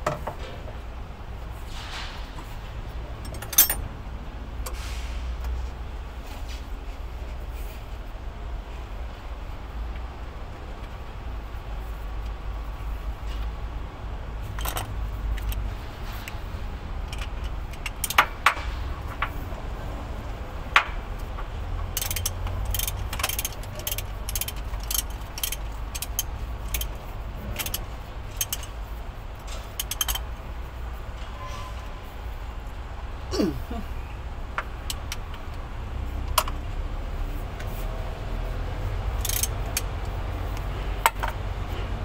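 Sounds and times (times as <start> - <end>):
hand tools clinking on metal: 3.2 - 3.9, 21.8 - 27.0.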